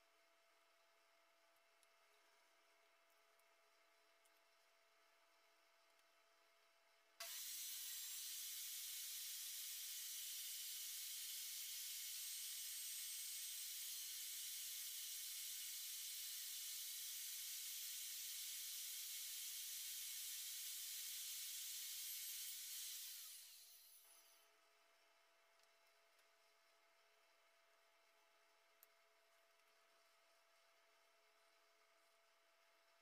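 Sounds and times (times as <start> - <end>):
table saw running: 7.2 - 24.1
table saw winding down: 7.2 - 24.2.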